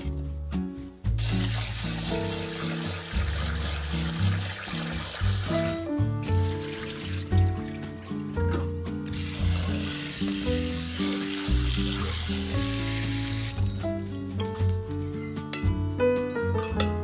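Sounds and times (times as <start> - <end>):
background music: 0.0 - 17.0
water splashing into sink: 1.2 - 13.8.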